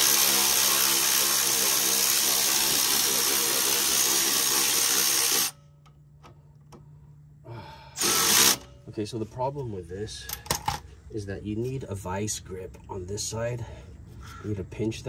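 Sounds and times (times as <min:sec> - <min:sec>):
cordless ratchet running: 0:00.0 - 0:05.6, 0:08.0 - 0:08.7.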